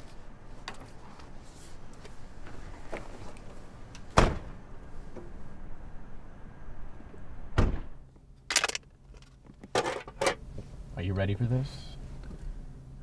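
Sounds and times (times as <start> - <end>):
car doors shutting: 7.6 - 8.0.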